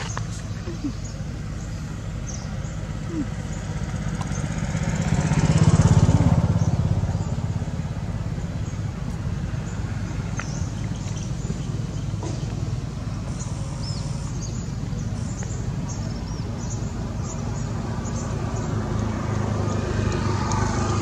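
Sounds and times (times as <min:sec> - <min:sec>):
engine running with low pulsing: 0:00.0 - 0:21.0.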